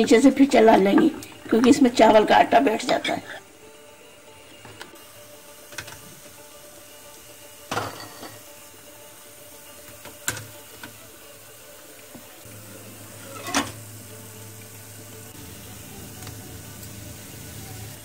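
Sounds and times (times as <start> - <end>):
hot oil sizzling in a wok: 5.0 - 18.0.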